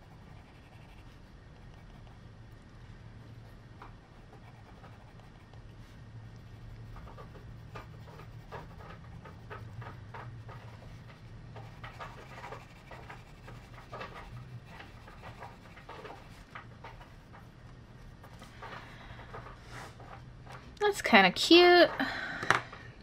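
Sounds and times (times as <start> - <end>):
pencil scratching on paper: 0.0 - 2.2, 3.2 - 18.6.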